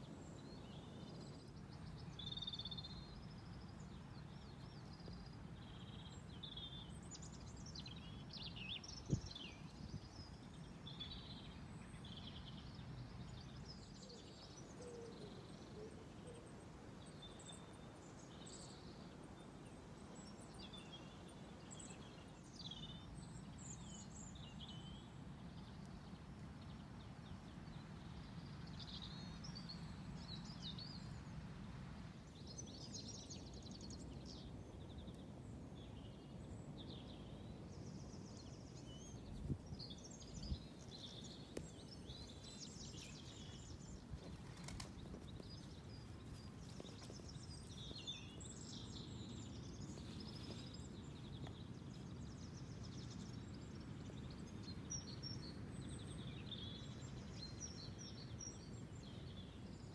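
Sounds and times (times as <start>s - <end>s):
small birds chirping: 32.3s - 59.9s.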